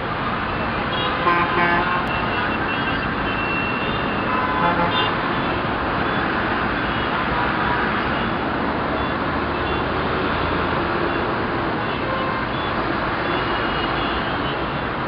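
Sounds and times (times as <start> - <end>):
road traffic noise: 0.0 - 15.0
vehicle horns tooting: 0.8 - 5.6, 11.1 - 14.7.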